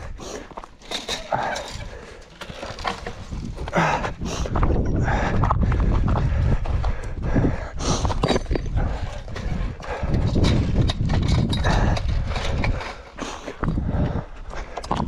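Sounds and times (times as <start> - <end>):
bike frame and wheels clattering: 0.0 - 4.8, 8.0 - 14.0.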